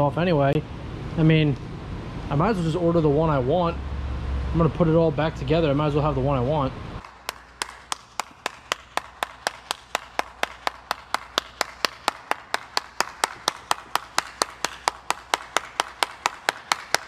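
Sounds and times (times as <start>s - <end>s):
person clapping hands: 7.0s - 17.0s.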